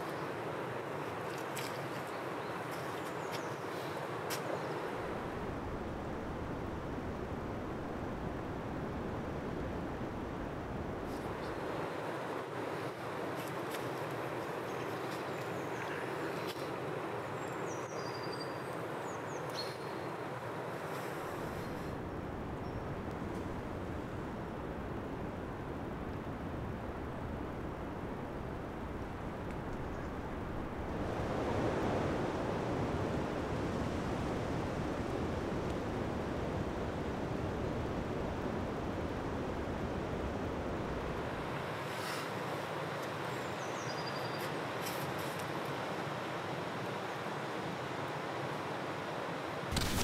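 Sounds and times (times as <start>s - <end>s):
outdoor background noise: 0.0s - 50.0s.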